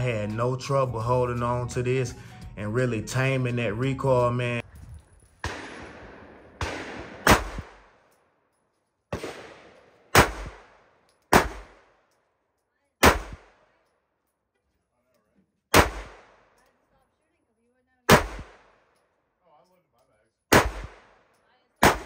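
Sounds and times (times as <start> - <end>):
pistol shots: 5.4 - 8.1, 9.1 - 12.1, 13.0 - 13.7, 15.7 - 16.6, 18.1 - 19.0, 20.5 - 22.0.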